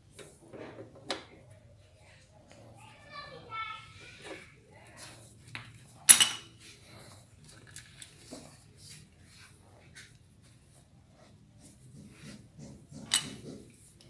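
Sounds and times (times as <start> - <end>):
metal tools clanking: 6.1 - 6.5.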